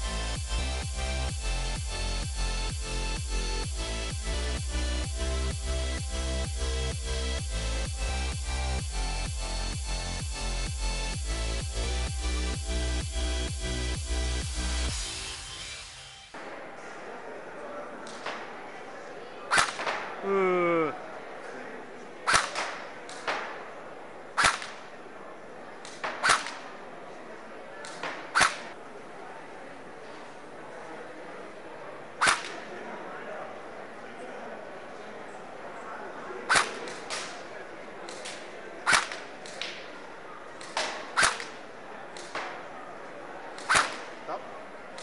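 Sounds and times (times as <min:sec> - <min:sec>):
airsoft rifle shots: 0:19.5 - 0:20.2, 0:22.3 - 0:23.6, 0:24.4 - 0:24.9, 0:25.9 - 0:26.7, 0:27.9 - 0:28.7, 0:32.2 - 0:32.6, 0:36.5 - 0:37.4, 0:38.9 - 0:39.3, 0:40.6 - 0:41.6, 0:43.6 - 0:44.2.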